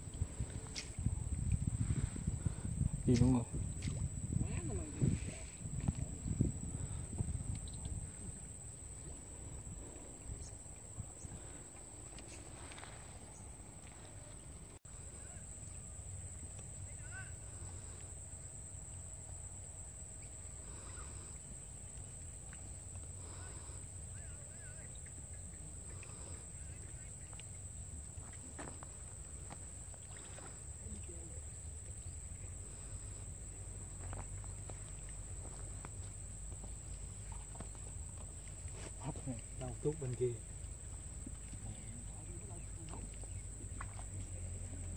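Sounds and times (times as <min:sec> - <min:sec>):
wind rumbling on microphone: 0:00.0 - 0:18.9.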